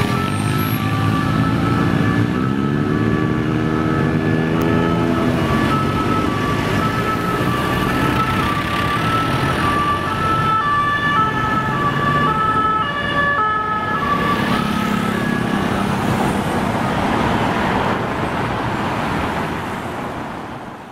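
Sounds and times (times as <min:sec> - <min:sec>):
two-tone police siren: 0:00.0 - 0:16.6
heavy city traffic: 0:00.0 - 0:20.9.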